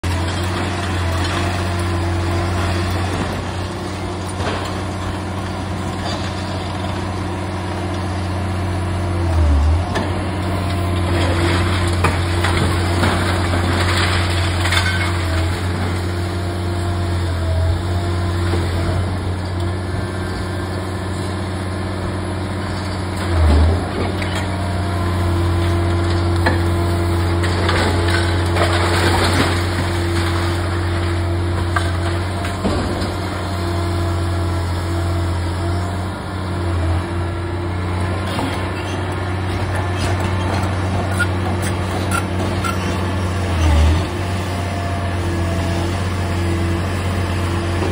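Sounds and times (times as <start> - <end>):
diesel engine droning: 0.0 - 47.9
concrete crackling and clattering: 9.9 - 17.4, 22.6 - 34.5
falling concrete and brick: 10.9 - 16.5, 25.4 - 34.6.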